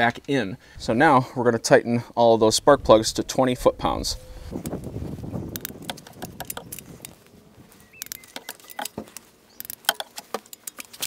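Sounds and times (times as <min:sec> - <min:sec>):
torque wrench ratcheting: 0:09.6 - 0:11.0.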